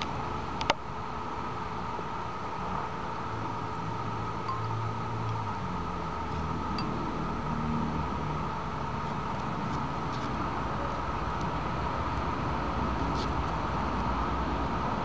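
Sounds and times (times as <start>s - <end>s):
background hum and hiss: 0.0s - 15.0s
low motor-like drone: 2.8s - 9.7s.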